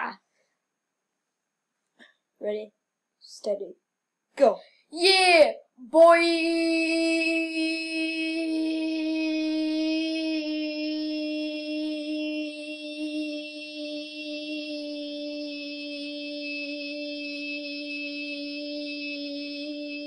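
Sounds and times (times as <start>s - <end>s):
boy singing long note: 5.0s - 20.0s.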